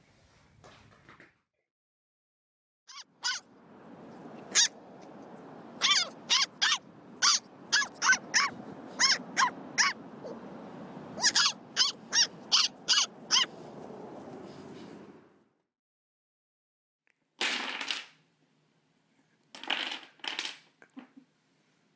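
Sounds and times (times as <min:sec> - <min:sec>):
puppy yapping: 0:02.9 - 0:03.5, 0:04.4 - 0:04.8, 0:05.8 - 0:10.4, 0:11.1 - 0:13.5.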